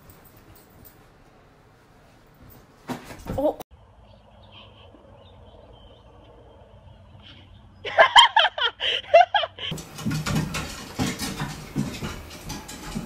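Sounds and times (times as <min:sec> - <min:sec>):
person laughing high-pitched: 0:07.9 - 0:09.7.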